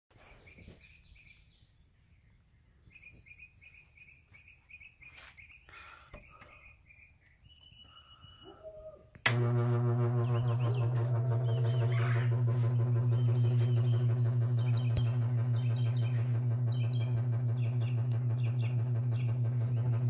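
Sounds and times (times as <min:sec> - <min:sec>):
birds chirping: 0:00.2 - 0:09.2, 0:10.0 - 0:20.0
loud electrical buzz: 0:09.2 - 0:20.0.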